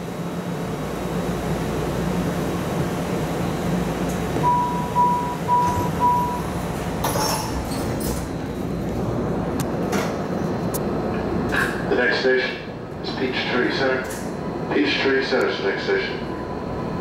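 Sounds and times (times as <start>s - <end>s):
railcar steady hum: 0.0s - 17.0s
train doors sliding shut: 4.0s - 9.1s, 9.7s - 10.6s
door warning chime beeps: 4.4s - 6.6s.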